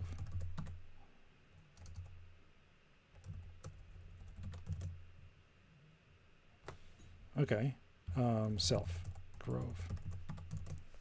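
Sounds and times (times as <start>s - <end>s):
typing on keyboard: 0.0s - 0.8s, 1.8s - 2.1s, 3.2s - 5.0s, 8.4s - 10.8s.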